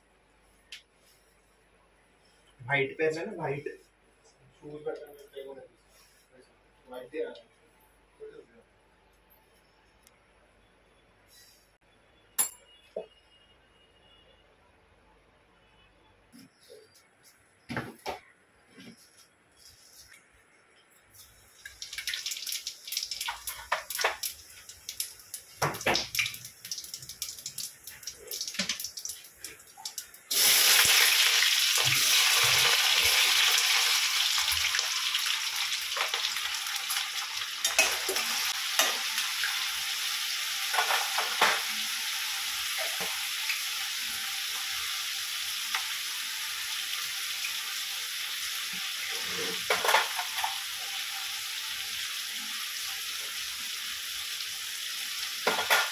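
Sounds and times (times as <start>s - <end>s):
potatoes sizzling in hot oil: 21.5s - 55.9s.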